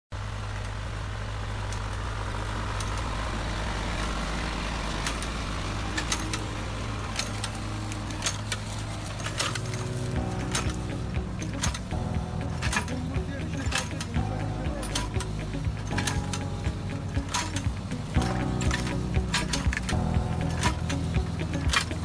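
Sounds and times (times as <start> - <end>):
tractor diesel engine running: 0.1 - 22.0
sharp clicks and rattles: 0.2 - 22.0.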